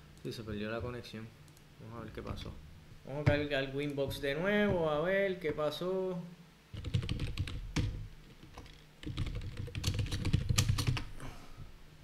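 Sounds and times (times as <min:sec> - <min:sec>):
keyboard typing: 0:06.8 - 0:11.1.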